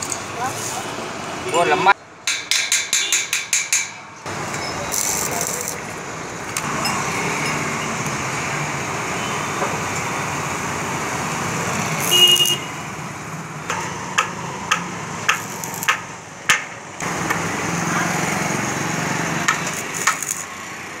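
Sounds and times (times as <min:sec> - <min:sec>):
welding hum and hiss: 0:04.3 - 0:07.4, 0:08.0 - 0:13.6, 0:14.3 - 0:16.4, 0:17.0 - 0:21.0.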